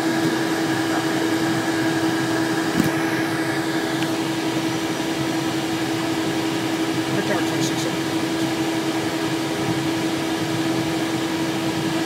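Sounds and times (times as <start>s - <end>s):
jet cockpit whir and hum: 0.0s - 12.0s.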